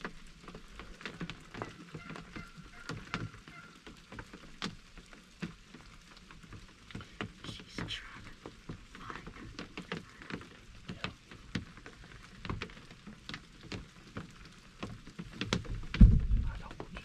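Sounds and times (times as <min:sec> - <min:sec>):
raindrops tapping on wood: 0:00.0 - 0:17.0
soft hiss of rain: 0:00.0 - 0:17.0.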